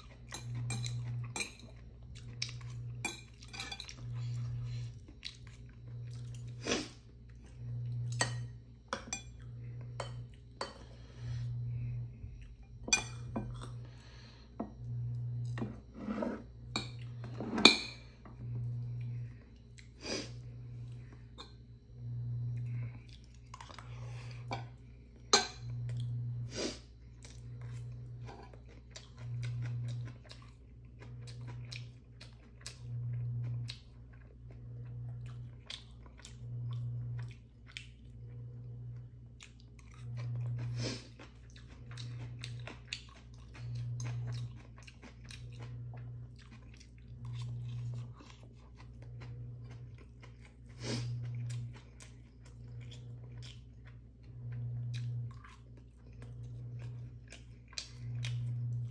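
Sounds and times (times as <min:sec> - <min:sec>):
low pulsing hum: 0:00.0 - 0:58.9
utensils clinking on ceramic bowls: 0:00.3 - 0:01.7, 0:02.6 - 0:04.2, 0:08.0 - 0:10.9, 0:12.8 - 0:13.8.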